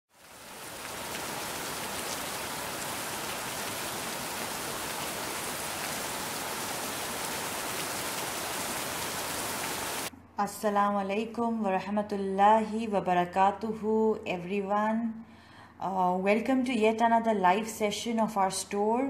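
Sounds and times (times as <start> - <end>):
steady rainfall: 0.1 - 10.1.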